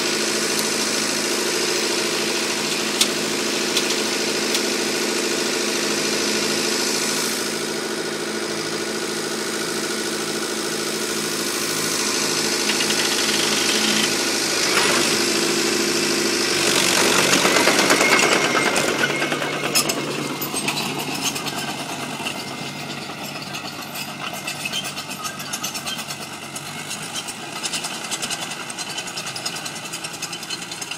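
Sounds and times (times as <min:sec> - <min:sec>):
tractor diesel engine revving: 0:00.0 - 0:30.9
crawler tracks rattling: 0:11.7 - 0:15.3, 0:16.5 - 0:30.9.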